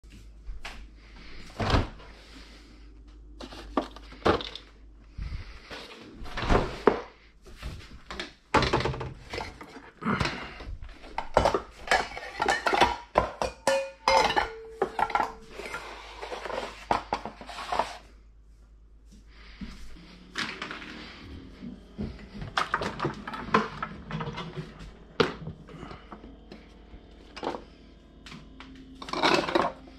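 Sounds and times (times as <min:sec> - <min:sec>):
metal bowls clattering: 0:11.1 - 0:18.0, 0:28.9 - 0:29.9
metal bowl ringing: 0:13.6 - 0:15.5.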